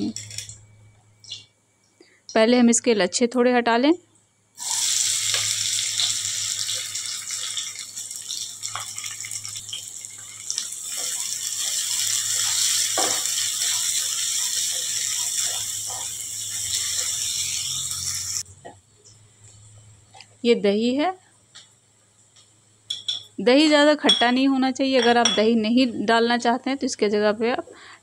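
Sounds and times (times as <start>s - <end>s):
onions sizzling in hot oil: 4.6s - 18.4s.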